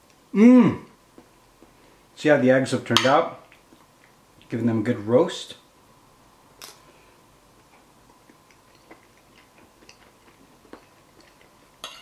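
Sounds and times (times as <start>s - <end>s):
mouth clicks chewing: 7.6s - 11.8s.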